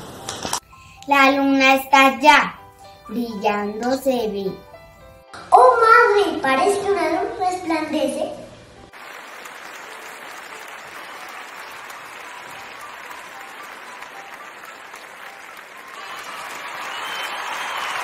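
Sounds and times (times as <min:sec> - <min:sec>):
crowd applause: 0:08.9 - 0:18.0.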